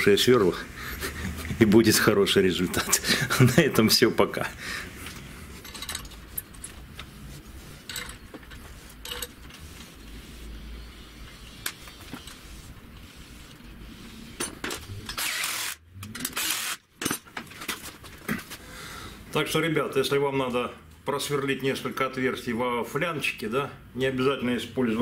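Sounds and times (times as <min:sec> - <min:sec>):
metallic clicks of nuts and bolts: 0:05.6 - 0:06.7
drill spinning: 0:15.0 - 0:16.8.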